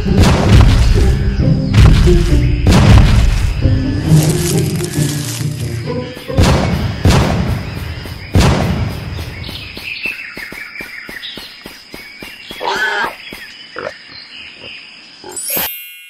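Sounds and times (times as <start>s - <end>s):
heavy booming thuds: 0.0s - 4.6s, 6.2s - 9.8s
birds chirping: 0.0s - 15.7s.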